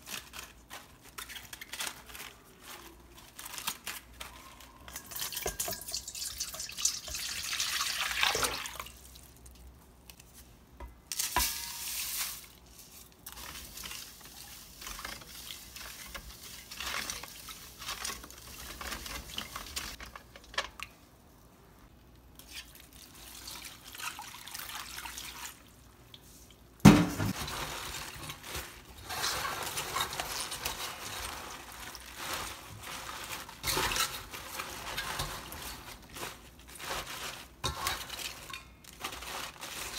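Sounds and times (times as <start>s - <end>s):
cabbage leaves rustling and splashing: 0.0s - 9.4s, 11.1s - 20.0s, 26.9s - 39.9s.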